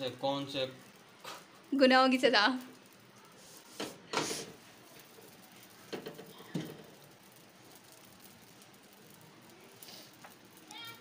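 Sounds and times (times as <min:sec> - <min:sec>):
faint hiss: 0:00.0 - 0:11.0
griddle knocks and clicks: 0:03.7 - 0:11.0.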